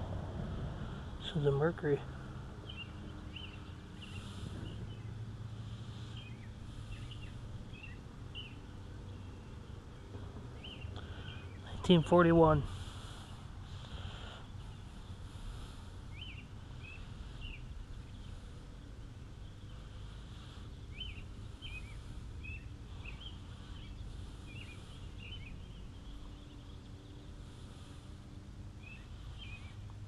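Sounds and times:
low outdoor rumble: 0:00.0 - 0:30.0
small bird chirping: 0:05.8 - 0:12.0, 0:14.1 - 0:28.1, 0:28.8 - 0:29.9.

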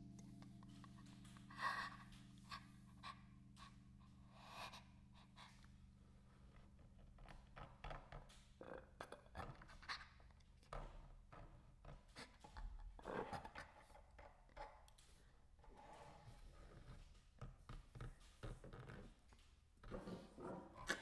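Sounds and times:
low hum: 0:00.0 - 0:06.6.

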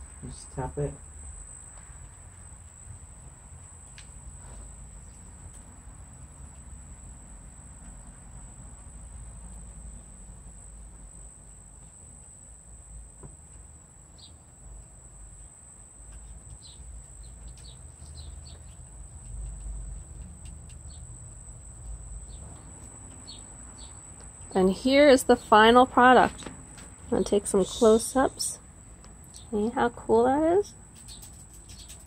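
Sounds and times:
steady high-pitched whine: 0:00.0 - 0:17.3.

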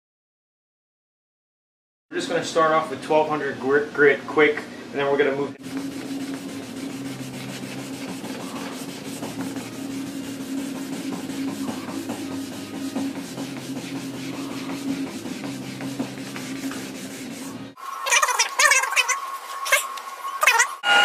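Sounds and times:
steady low hum: 0:02.2 - 0:17.8
sandpaper rubbing on paint: 0:05.6 - 0:19.8.

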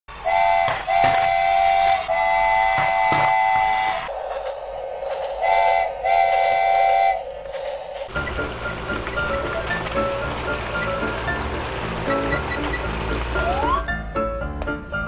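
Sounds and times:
steam-like hiss: 0:00.1 - 0:08.3
toy train electronic whistle: 0:00.2 - 0:04.1, 0:05.4 - 0:07.2
music: 0:08.1 - 0:15.0.

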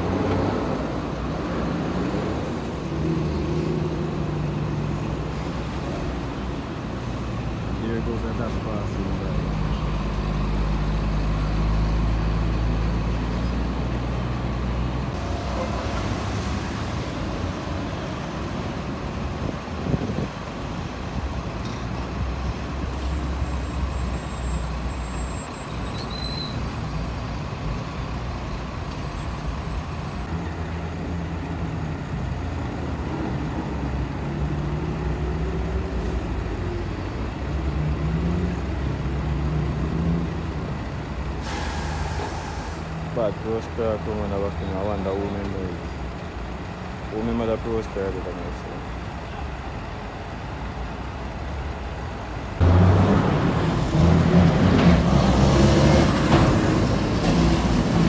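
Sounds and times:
diesel truck engines running: 0:00.0 - 0:58.0
road traffic: 0:00.0 - 0:58.0
air brakes hissing: 0:41.4 - 0:43.0.

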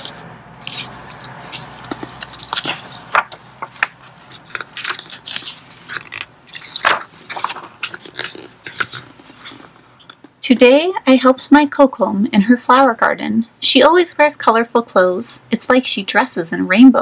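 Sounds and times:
book pages rustling and turning: 0:00.0 - 0:10.3.

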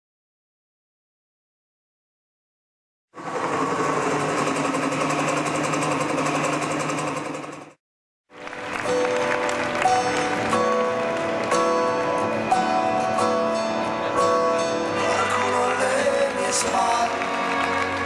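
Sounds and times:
music with held melodic notes: 0:08.4 - 0:18.0.

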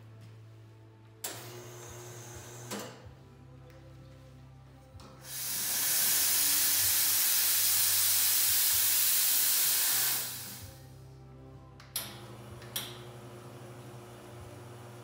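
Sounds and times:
espresso machine steam hissing: 0:05.2 - 0:10.8.

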